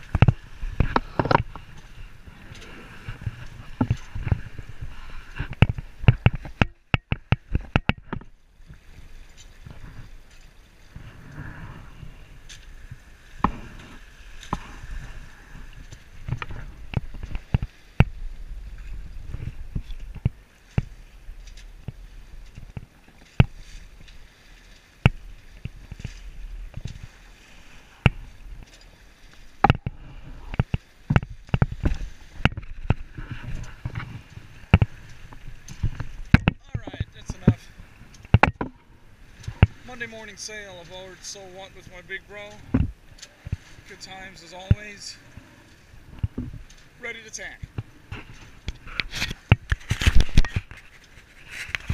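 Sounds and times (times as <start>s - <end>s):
wind and water rumble: 0.0s - 51.9s
sharp knocks and clicks: 0.1s - 1.6s, 5.4s - 8.3s, 29.6s - 33.0s, 35.7s - 38.8s.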